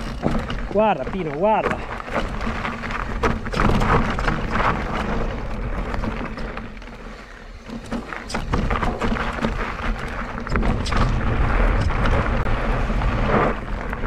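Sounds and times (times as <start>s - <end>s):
bike rattling and knocking: 0.0s - 14.0s
bike tyres on dirt and stones: 0.0s - 14.0s
wind rumble on microphone: 7.8s - 14.0s.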